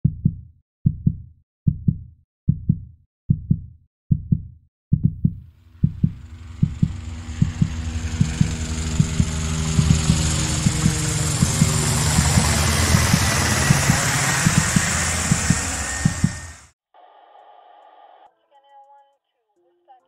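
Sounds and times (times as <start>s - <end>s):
heartbeat double thumps: 0.0s - 16.6s
steady noise with low hum: 5.6s - 16.6s.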